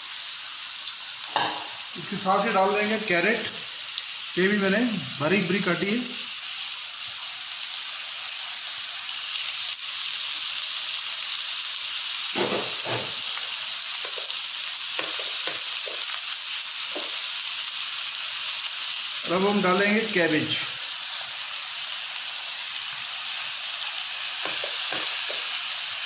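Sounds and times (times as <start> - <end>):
vegetables sizzling in oil: 0.0 - 26.0
wooden spatula stirring in pan: 12.4 - 17.3, 24.3 - 25.6.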